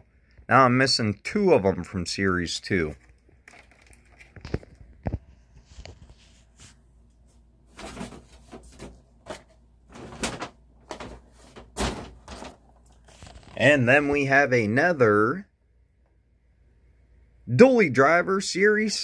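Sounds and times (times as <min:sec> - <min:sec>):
plastic packaging rustling: 0:02.8 - 0:06.8, 0:07.7 - 0:13.8.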